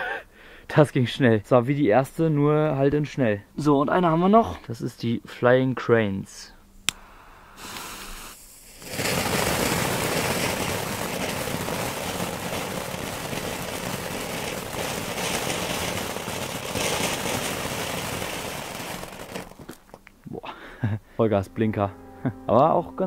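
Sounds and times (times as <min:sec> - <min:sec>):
firework fountain hissing: 0:07.4 - 0:20.0.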